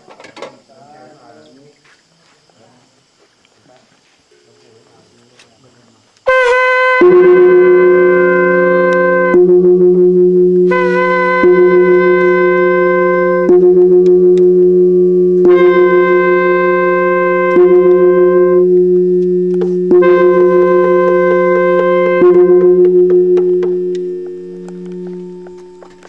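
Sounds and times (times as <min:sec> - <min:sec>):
long blown wind instrument notes: 0:06.3 - 0:26.0
steady low drone: 0:07.0 - 0:26.0.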